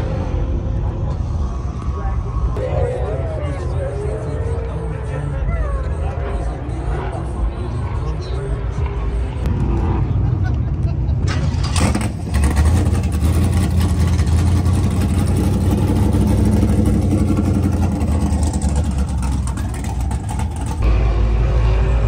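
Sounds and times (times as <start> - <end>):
car engine idling: 11.1 - 21.0.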